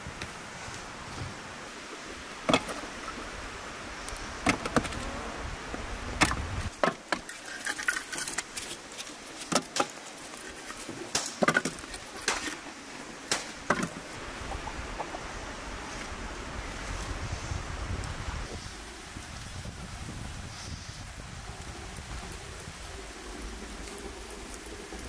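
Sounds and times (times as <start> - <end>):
steady background hiss: 0.0 - 25.0
firewood pieces knocking together: 2.5 - 2.8, 4.4 - 5.0, 6.2 - 12.6, 13.3 - 14.2.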